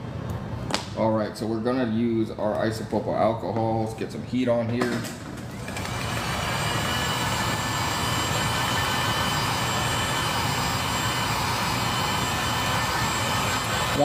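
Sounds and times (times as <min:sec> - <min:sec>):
heat gun blowing with faint whine: 0:05.7 - 0:14.0.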